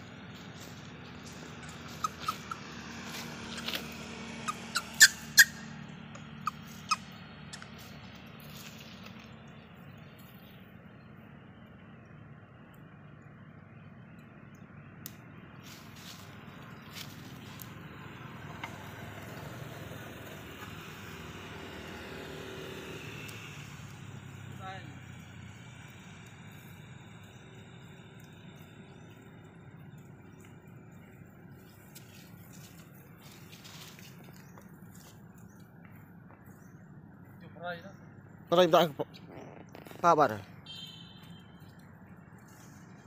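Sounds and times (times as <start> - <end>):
vehicle engine rumbling: 0.0 - 43.0
macaques squealing: 1.1 - 7.8.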